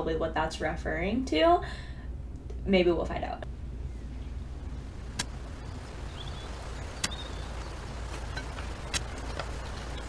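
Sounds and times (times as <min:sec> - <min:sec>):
low rumble: 0:01.2 - 0:10.0
faint chirps: 0:03.7 - 0:08.5.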